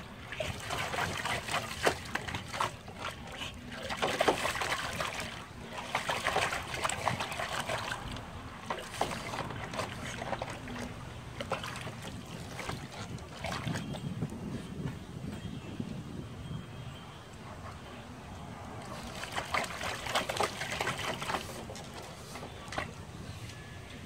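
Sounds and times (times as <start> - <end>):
dog splashing water in a tub: 0.0 - 14.5, 18.7 - 23.2.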